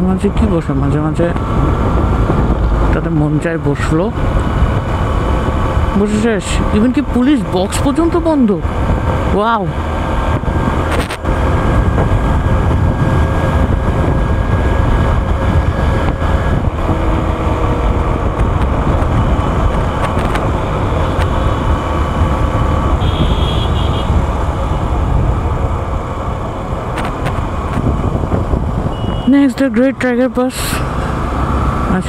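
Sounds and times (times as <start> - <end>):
wind rushing over microphone: 0.0 - 32.0.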